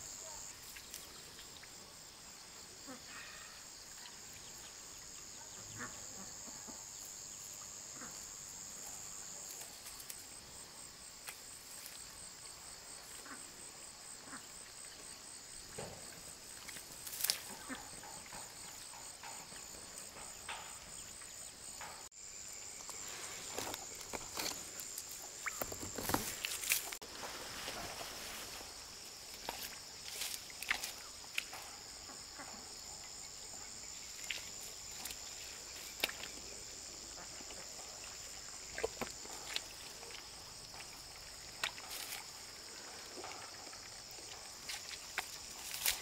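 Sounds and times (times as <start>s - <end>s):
high-pitched insect chorus: 0.0s - 46.0s
handling knocks and rustles: 22.8s - 31.8s.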